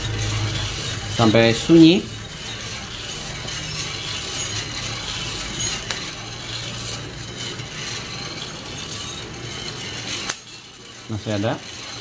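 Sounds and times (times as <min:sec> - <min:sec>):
coffee beans rattling in metal drum: 0:00.0 - 0:12.0
crank mechanism clicking: 0:02.6 - 0:10.8.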